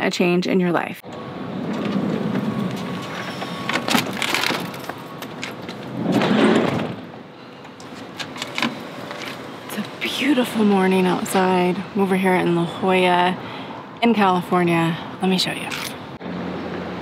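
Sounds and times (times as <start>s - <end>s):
sliding door rolling open: 1.1s - 9.7s
sliding door slamming shut: 1.4s - 4.8s, 5.8s - 7.2s.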